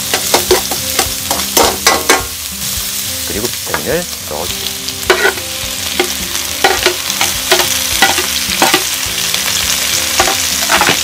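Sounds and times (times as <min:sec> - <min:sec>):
greens sizzling in hot oil: 0:00.0 - 0:11.0
metal ladle scraping wok: 0:05.0 - 0:05.4, 0:10.2 - 0:11.0.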